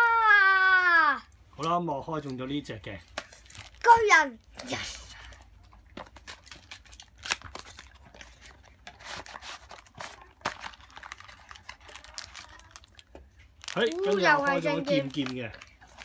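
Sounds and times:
packaging crinkling: 3.1s - 4.0s, 6.0s - 16.0s.

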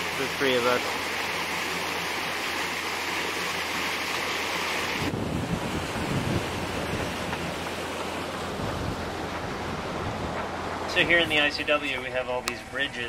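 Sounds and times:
water rushing along hull: 0.0s - 13.0s
wind buffeting microphone: 5.0s - 11.8s.

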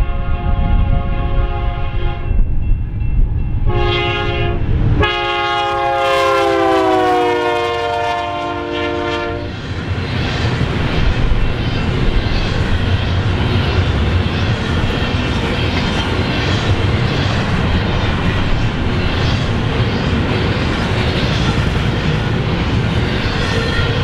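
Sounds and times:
locomotive air horn blasts: 0.0s - 2.3s, 3.7s - 9.5s
train cars rumbling and rattling: 0.0s - 24.0s.

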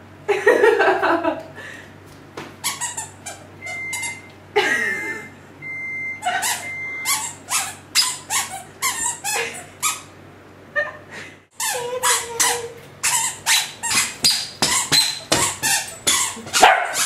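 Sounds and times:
squeaker shoes squeaking: 2.6s - 4.3s, 6.2s - 10.1s, 11.6s - 17.0s.

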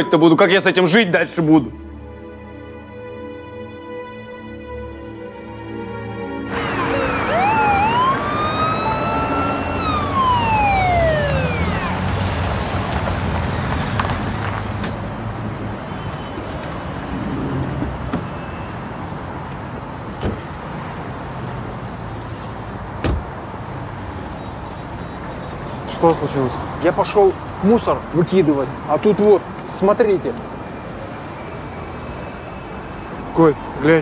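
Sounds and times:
traffic and engine rumble: 5.1s - 34.0s
police siren winding down: 6.4s - 12.7s.

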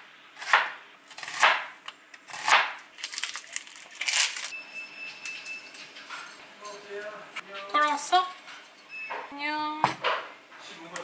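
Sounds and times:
knife slicing onion on board: 0.4s - 2.8s
faint steady high tone: 4.5s - 5.9s.

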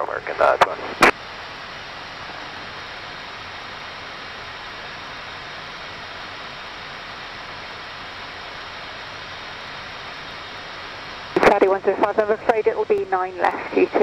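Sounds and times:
aircraft cockpit rushing noise: 9.3s - 14.0s.

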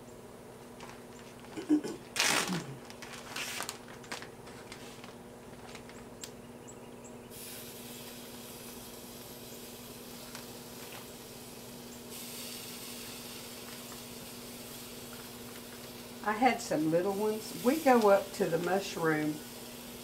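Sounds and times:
plastic zip bag crinkling: 0.8s - 6.1s, 10.2s - 11.1s
mushrooms sizzling on grill: 7.3s - 20.0s.

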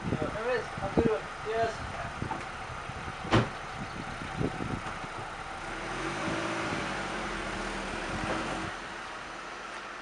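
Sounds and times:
car engine pulling away: 1.0s - 10.0s
car door slamming: 3.2s - 3.7s.

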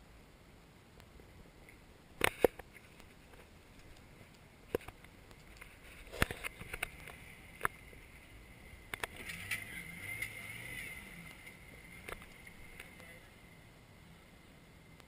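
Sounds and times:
sharp clicks and knocks: 1.7s - 8.0s, 8.9s - 13.1s
distant off-road vehicle engine: 3.4s - 15.0s.

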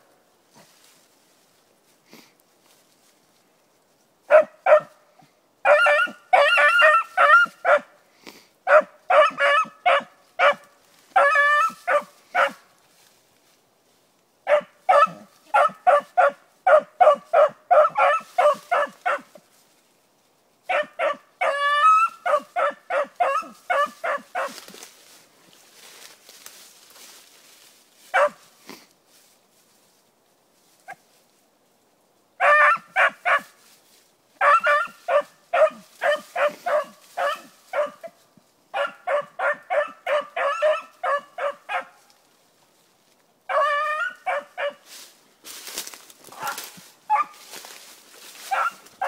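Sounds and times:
hound barking and bawling: 5.6s - 7.9s, 8.7s - 10.6s, 11.2s - 12.6s, 14.5s - 19.3s, 20.7s - 24.6s, 32.4s - 33.5s, 34.4s - 42.0s, 43.5s - 44.8s, 46.3s - 47.4s, 48.5s - 48.9s.

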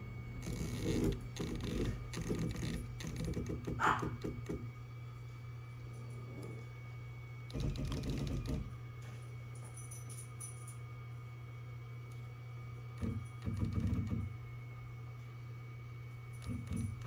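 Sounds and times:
stepper motor buzzing steps: 0.0s - 4.9s, 7.4s - 9.0s, 13.0s - 14.5s, 16.3s - 17.0s
steady low hum: 0.0s - 17.0s.

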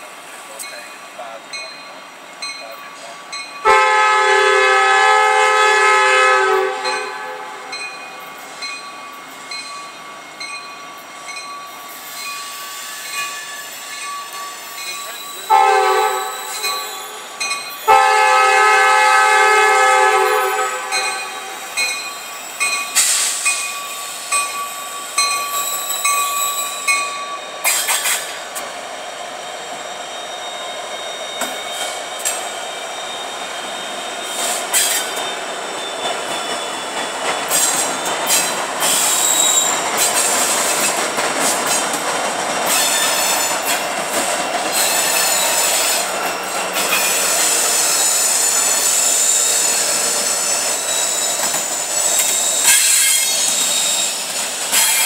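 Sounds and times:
wheels squealing on rails: 0.0s - 55.0s
locomotive air horn blasts: 3.6s - 7.7s, 15.5s - 17.2s, 17.9s - 21.7s
wheels clattering on rails: 35.9s - 55.0s.

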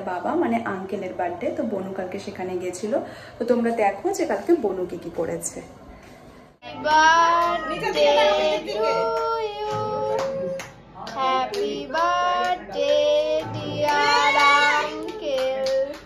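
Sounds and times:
child singing: 6.6s - 16.0s.

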